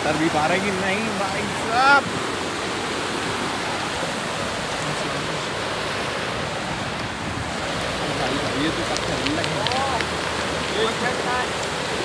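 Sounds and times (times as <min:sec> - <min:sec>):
fast-flowing water rushing: 0:00.0 - 0:12.0.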